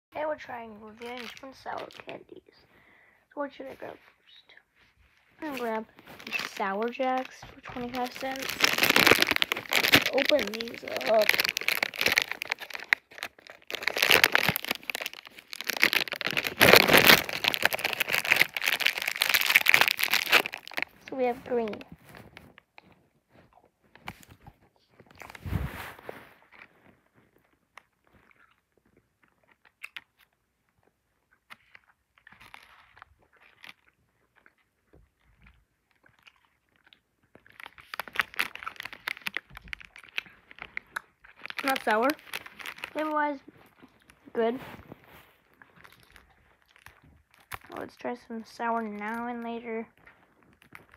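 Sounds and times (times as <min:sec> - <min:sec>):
candy wrapper crinkling: 0:00.3 - 0:02.6, 0:05.4 - 0:50.9.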